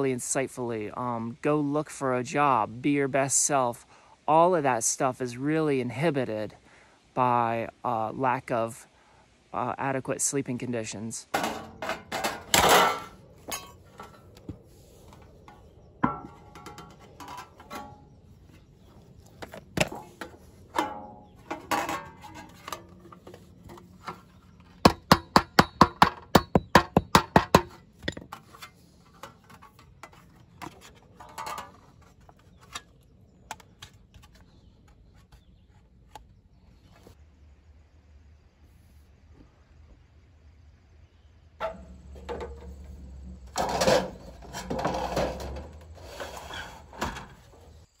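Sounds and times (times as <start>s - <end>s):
hammer strikes on copper: 24.9s - 27.7s.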